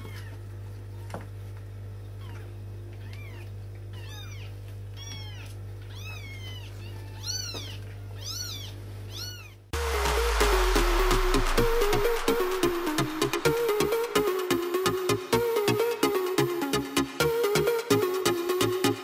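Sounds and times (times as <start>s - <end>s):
kittens mewing: 2.2s - 9.6s
low hum: 9.8s - 17.4s.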